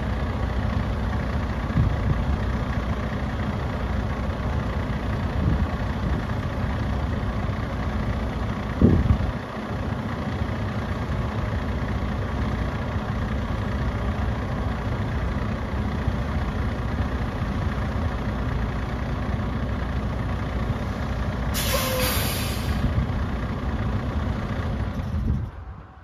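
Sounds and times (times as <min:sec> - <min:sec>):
diesel truck engine running: 0:00.0 - 0:26.0
air brake hiss: 0:21.5 - 0:22.9.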